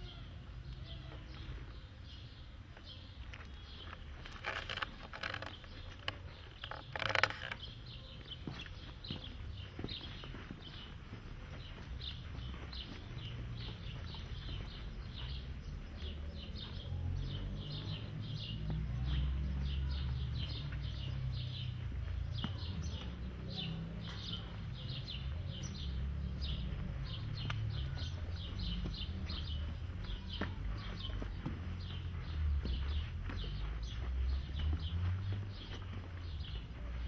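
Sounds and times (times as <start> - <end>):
small birds chirping: 0.0 - 37.0.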